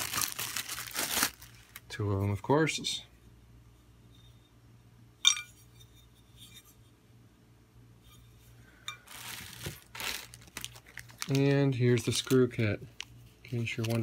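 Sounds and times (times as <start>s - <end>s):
plastic bag crinkling: 0.0s - 1.9s, 9.0s - 14.0s.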